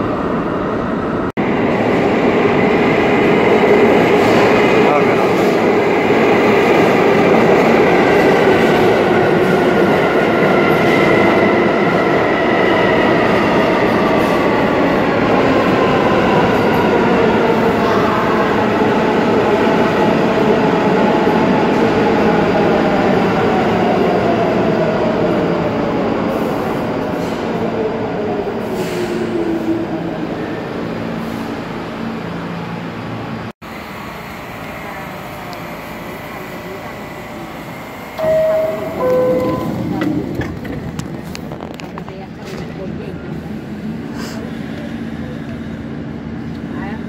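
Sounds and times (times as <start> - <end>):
train braking: 33.9 - 40.6.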